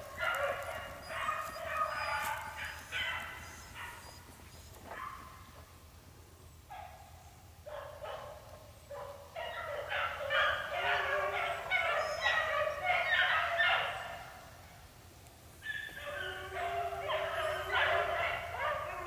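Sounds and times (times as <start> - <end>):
dogs baying: 0.0 - 5.3, 9.4 - 14.1, 15.7 - 19.0.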